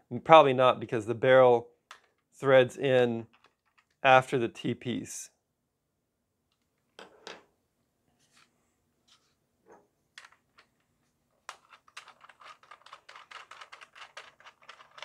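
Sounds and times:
plastic toy parts clicking: 11.5s - 15.0s.

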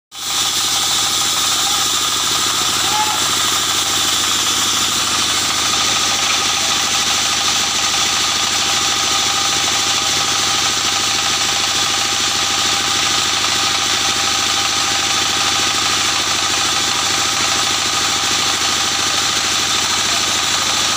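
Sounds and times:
band saw machine hum: 0.1s - 20.9s.

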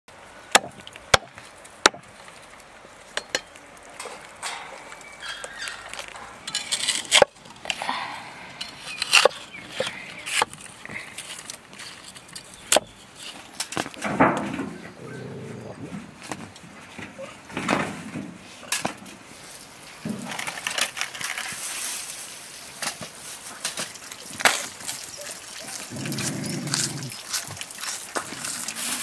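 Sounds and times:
blade chopping on wood: 0.5s - 2.1s.

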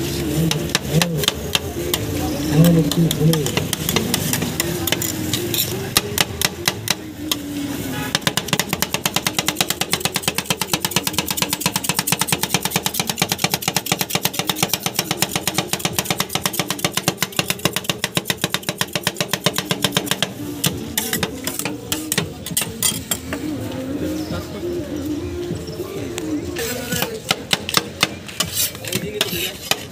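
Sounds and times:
metal spatulas clacking on metal plate: 2.9s - 7.0s, 20.8s - 23.4s.

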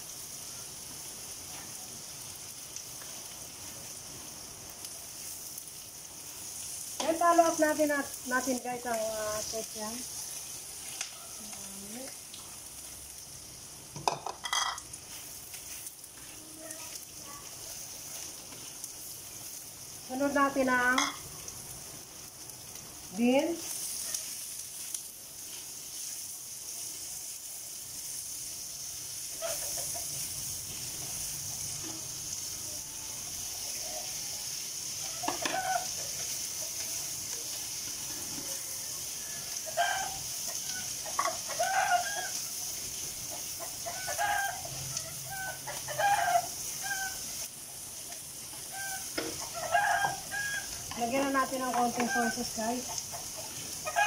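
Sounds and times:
food sizzling in a wok: 0.0s - 54.0s
chickens clucking: 29.4s - 30.2s, 43.2s - 47.1s, 51.6s - 54.0s.

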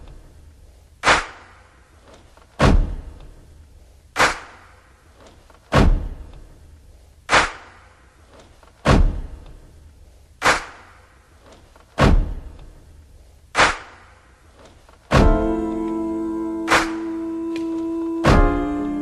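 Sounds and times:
sharp crack-like drum hits: 1.0s - 1.7s, 2.6s - 3.2s, 4.2s - 4.8s, 5.7s - 6.2s, 7.3s - 7.9s, 8.8s - 9.4s, 10.4s - 11.1s, 12.0s - 12.5s, 13.6s - 14.2s, 15.1s - 15.7s
deep booming drum hits: 15.1s - 15.8s, 18.3s - 18.8s.

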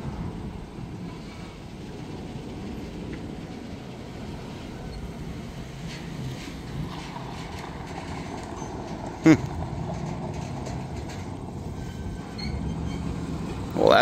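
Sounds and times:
freight train low rumble: 0.0s - 14.0s
wheels and couplers clicking: 4.7s - 14.0s.

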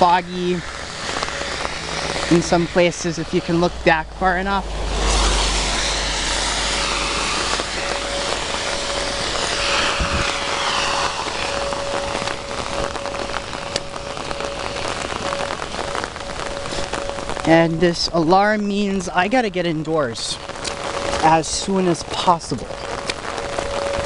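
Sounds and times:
hiss of falling rain: 0.0s - 24.0s
warning siren steady tone: 0.0s - 24.0s
raindrop ticks: 11.7s - 24.0s.

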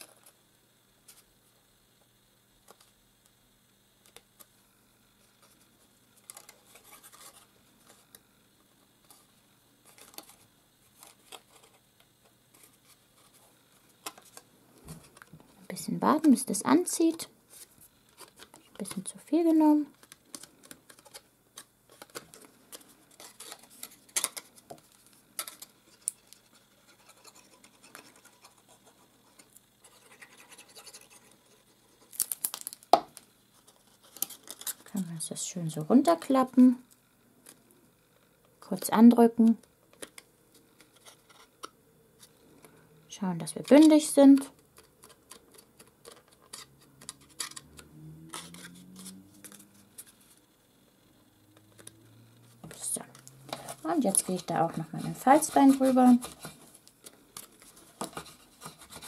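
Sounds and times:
paper rustling: 52.7s - 59.0s.

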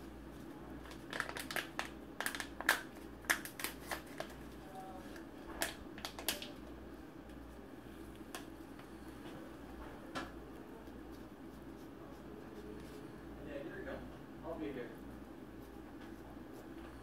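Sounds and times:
sharp crinkles and clicks: 0.8s - 6.6s.

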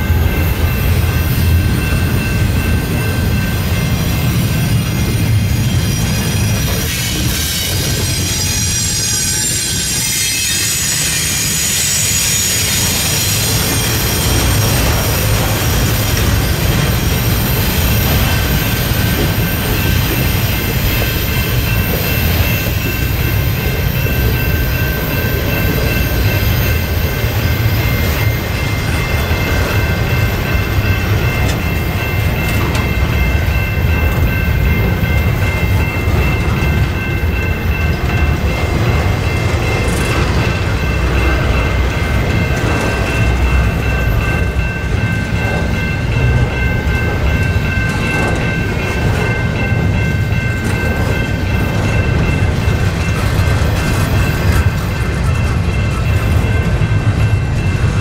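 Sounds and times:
high wheel squeal: 0.0s - 38.5s
steel wheels rumbling on rail: 0.0s - 58.0s.

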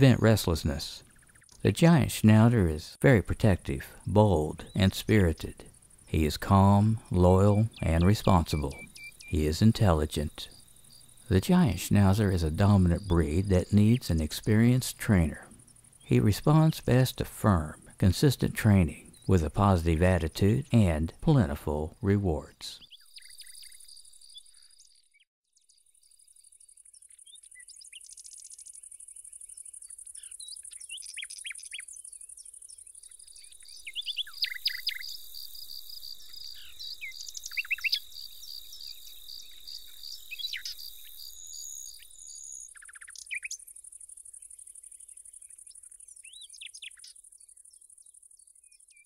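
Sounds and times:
birds chirping: 0.0s - 49.0s
pulsing insect trill: 4.6s - 16.7s, 25.7s - 48.7s
high-pitched insect drone: 33.1s - 42.7s.

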